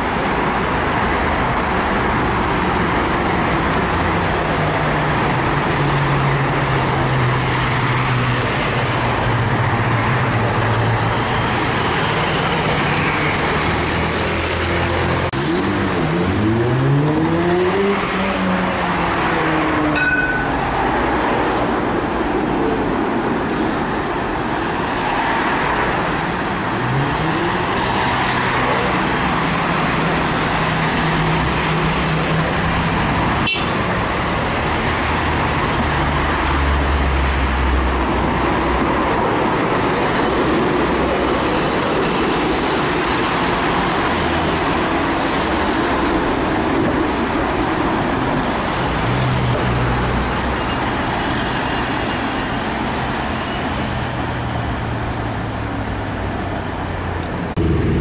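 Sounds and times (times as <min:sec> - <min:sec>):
street traffic: 0:00.0 - 0:58.0
vehicle accelerating: 0:12.7 - 0:20.0, 0:57.5 - 0:58.0.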